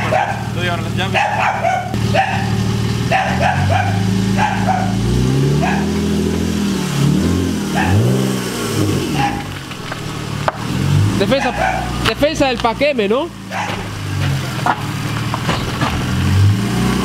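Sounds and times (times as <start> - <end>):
dog barking: 0.0 - 5.0, 5.6 - 6.0, 7.7 - 8.1, 9.1 - 9.5, 11.2 - 12.0, 13.5 - 13.9
car engine idling and revving: 0.0 - 17.0.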